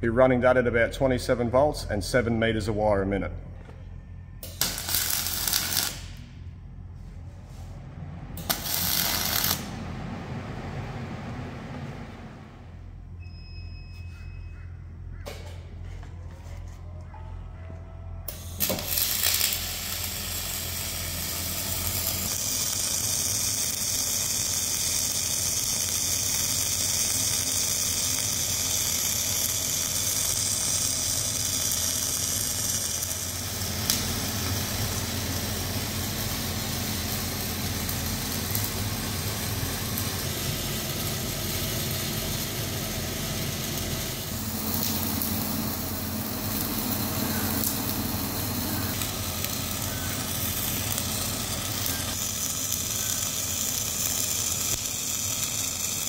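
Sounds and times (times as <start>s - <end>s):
welding arc sizzling crackle: 4.4s - 7.7s, 8.4s - 9.9s, 18.2s - 56.0s.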